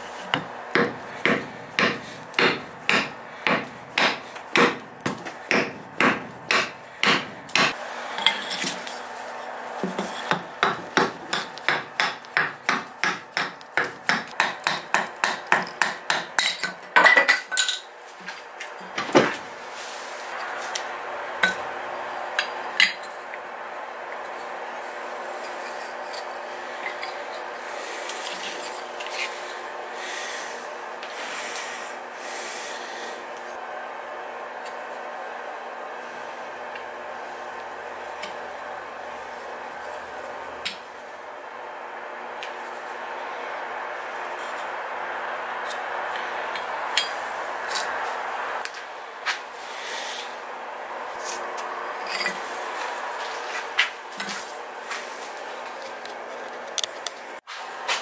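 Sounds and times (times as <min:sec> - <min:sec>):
hatchet chopping wood: 0:00.3 - 0:07.8, 0:09.9 - 0:16.4.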